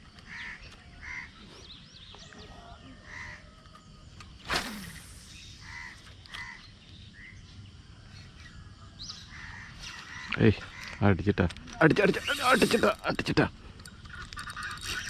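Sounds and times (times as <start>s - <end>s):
small birds chirping: 0.0s - 15.0s
crows cawing: 0.3s - 1.4s, 3.0s - 3.5s, 5.6s - 6.7s, 9.3s - 11.1s.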